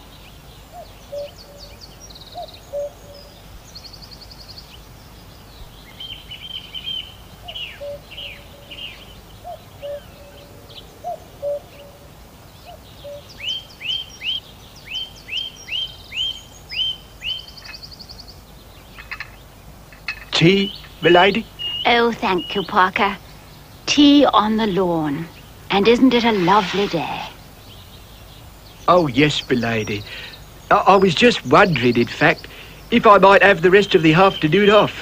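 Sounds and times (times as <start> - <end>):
short lower bird calls: 0.0 - 4.9, 5.5 - 35.0
songbirds chirping and trilling: 0.0 - 35.0
steady hiss: 0.0 - 35.0.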